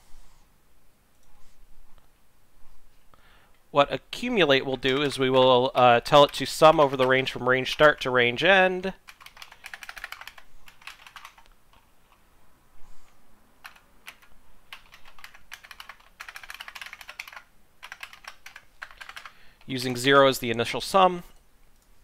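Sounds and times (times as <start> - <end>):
keyboard typing: 4.5 - 8.1, 9.0 - 12.2, 13.6 - 20.8.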